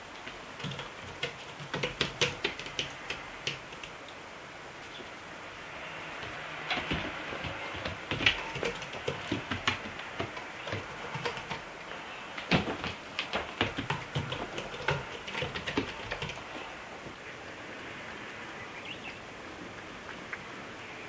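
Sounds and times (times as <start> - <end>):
sharp knocks: 0.6 - 3.9, 6.2 - 16.6
cat paws thumping on foam mat: 6.2 - 11.7, 12.4 - 16.5.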